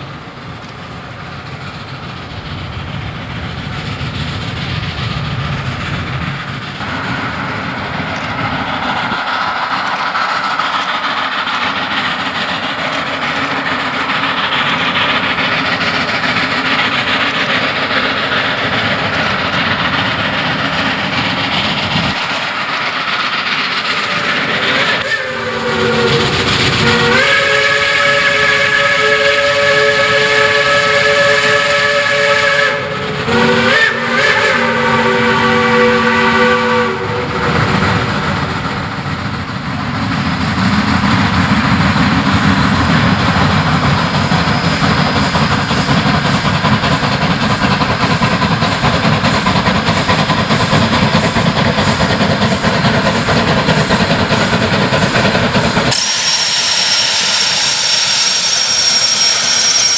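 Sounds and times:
steam locomotive working hard: 0.0 - 59.9
steam whistle blowing: 24.7 - 37.8, 55.9 - 59.9.

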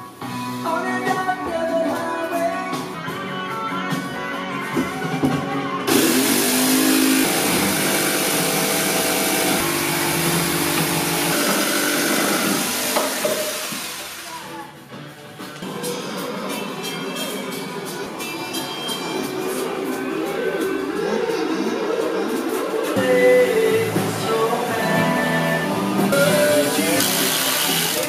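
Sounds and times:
jigsaw cutting wooden board: 5.9 - 14.3, 26.3 - 28.0
acoustic guitar music: 22.9 - 28.0.

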